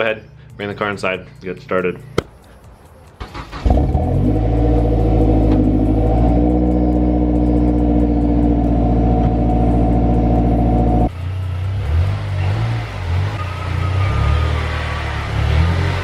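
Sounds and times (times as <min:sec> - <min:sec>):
car engine starting and idling: 0:03.1 - 0:11.8.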